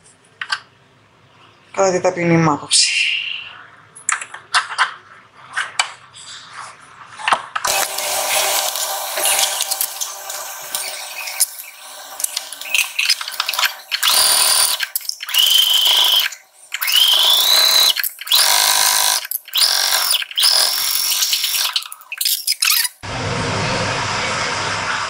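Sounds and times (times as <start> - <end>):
sewing machine whine: 7.7 - 21.8.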